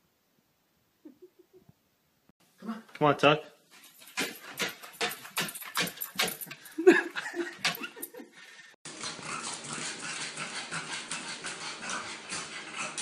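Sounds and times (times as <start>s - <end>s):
dog claws clicking on wooden stairs: 3.8s - 6.7s.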